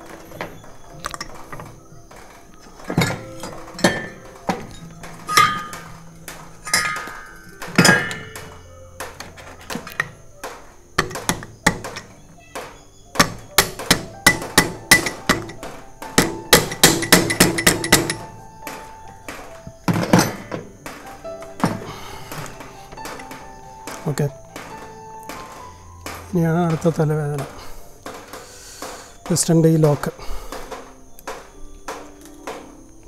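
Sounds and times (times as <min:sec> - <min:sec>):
metal tools clinking on engine parts: 0:00.0 - 0:01.8, 0:02.6 - 0:12.2, 0:13.2 - 0:18.9, 0:19.9 - 0:20.7.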